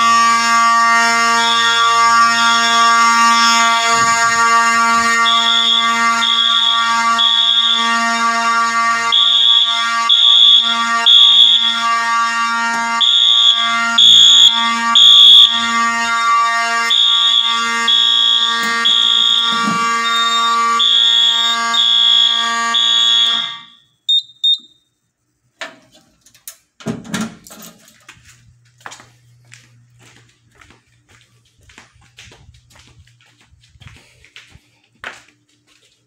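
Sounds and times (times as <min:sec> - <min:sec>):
fire alarm horns pulsing: 0:00.0 - 0:25.4.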